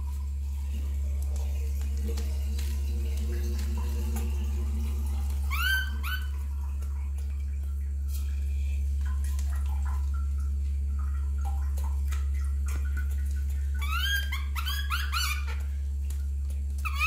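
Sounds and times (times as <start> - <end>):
steady low hum: 0.0 - 17.0
baby monkey squealing: 5.5 - 6.4, 13.8 - 15.7.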